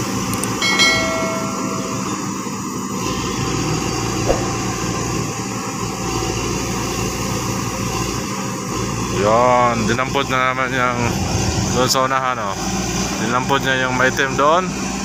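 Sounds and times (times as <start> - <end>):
sharp knock: 4.2 - 4.9.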